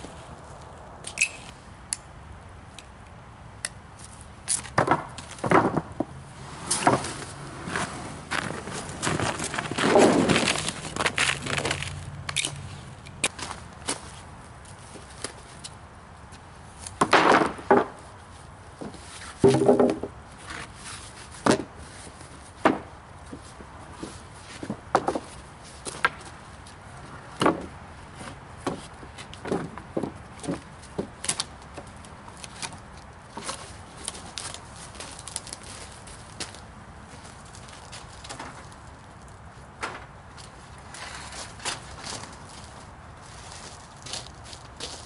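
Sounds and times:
sharp wooden knocks: 4.7 - 6.1, 17.0 - 18.0, 18.8 - 20.2, 29.4 - 31.2
boards clattering: 4.7 - 11.3, 17.0 - 18.0, 18.8 - 20.2, 22.6 - 23.4, 28.6 - 31.2
rubber mat scraping over boards: 5.7 - 11.8
footsteps crunching in snow: 7.3 - 12.0, 40.4 - 45.0.

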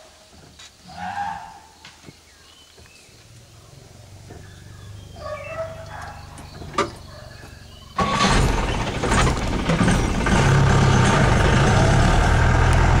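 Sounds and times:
road noise: 0.0 - 13.0
jeep engine running: 4.2 - 13.0.

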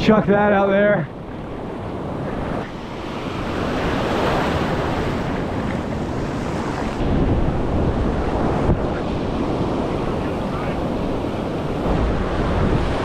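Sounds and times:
ocean surf washing onto beach: 0.0 - 13.0
wind buffeting microphone: 1.1 - 13.0.

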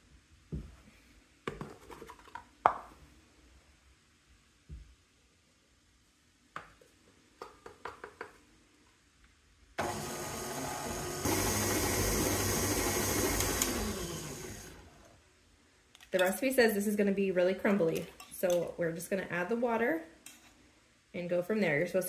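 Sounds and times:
stand mixer motor running: 9.8 - 15.0.

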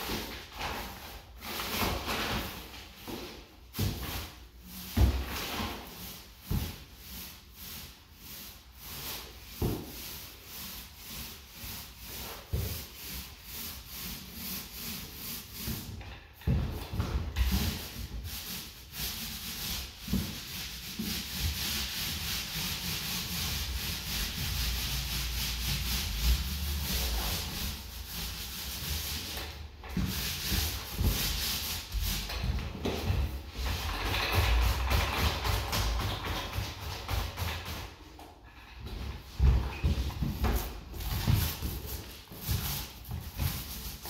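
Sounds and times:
paint roller rubbing on wall: 0.0 - 44.0.

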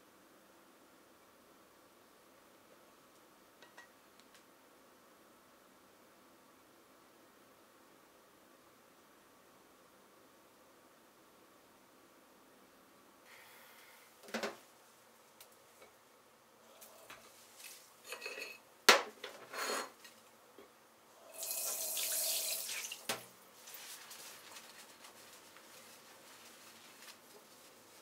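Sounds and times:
dishes clinking in a metal sink: 18.0 - 18.6.

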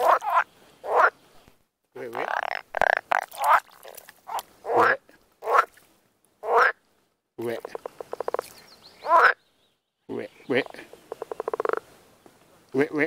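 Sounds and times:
frogs croaking: 0.0 - 1.2, 2.0 - 3.7, 4.3 - 5.7, 6.4 - 6.8, 7.4 - 9.4, 10.1 - 11.9.

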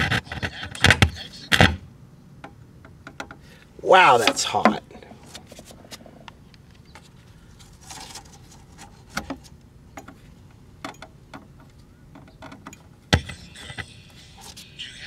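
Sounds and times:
light clicks and knocks on metal: 10.8 - 13.4.

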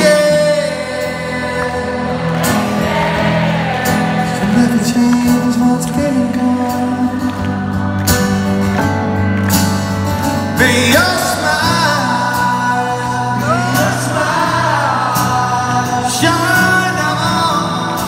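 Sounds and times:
person singing: 0.0 - 8.6, 10.5 - 18.0
live rock band playing ballad: 0.0 - 18.0.

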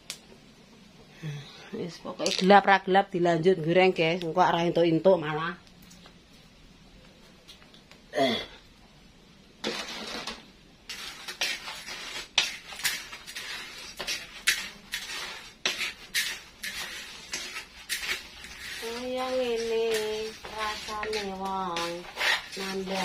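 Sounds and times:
crackers frying in oil: 7.4 - 23.0
utensil scraping wok: 9.6 - 23.0.

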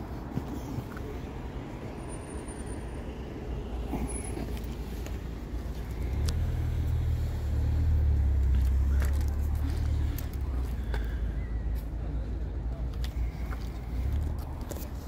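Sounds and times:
vehicle engine rumbling: 0.0 - 15.0.

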